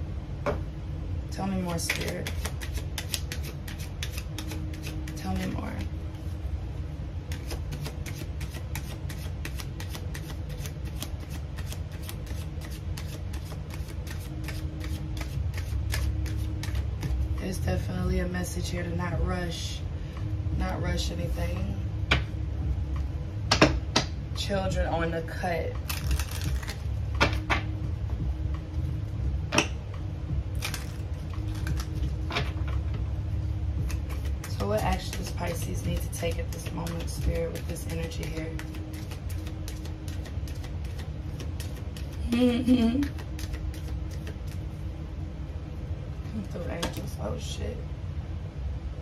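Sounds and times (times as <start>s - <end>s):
steady low hum: 0.0s - 49.0s
cards being shuffled: 1.7s - 5.9s, 7.3s - 17.4s, 25.8s - 27.6s, 30.5s - 32.8s, 33.8s - 42.4s, 43.0s - 44.6s.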